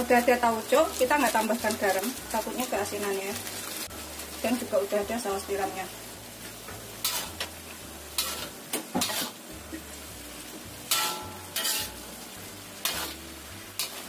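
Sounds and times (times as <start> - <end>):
food sizzling: 0.0 - 14.0
spatula scraping a pan: 7.0 - 9.5, 10.8 - 14.0.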